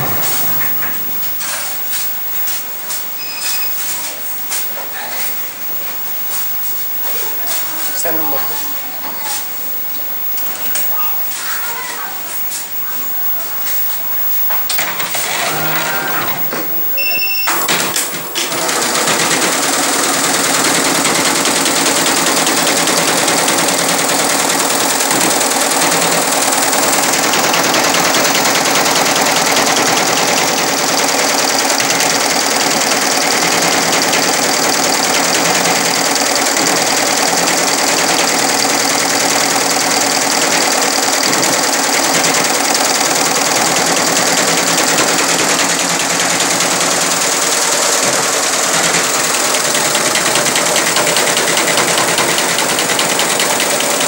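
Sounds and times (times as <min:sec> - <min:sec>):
short beep: 0:00.0 - 0:18.0
embroidery machine stitching: 0:00.0 - 0:54.0.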